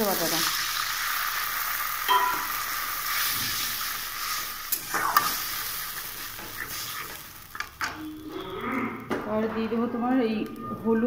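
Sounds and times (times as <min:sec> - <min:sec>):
paste and onions sizzling: 0:00.0 - 0:08.2
spatula scraping a pan: 0:03.1 - 0:07.3.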